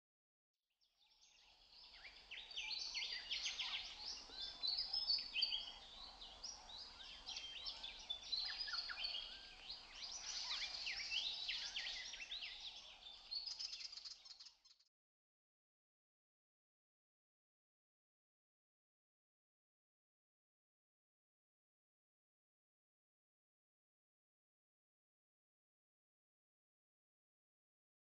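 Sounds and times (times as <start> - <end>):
songbirds chirping: 0.8 - 14.9.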